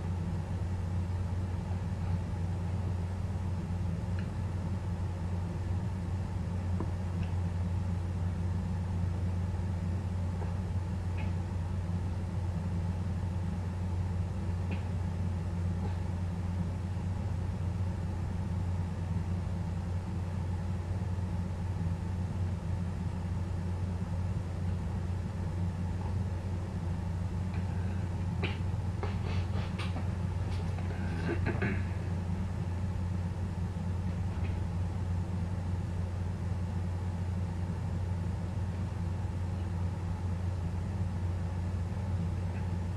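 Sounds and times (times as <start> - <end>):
steady low hum: 0.0 - 42.9.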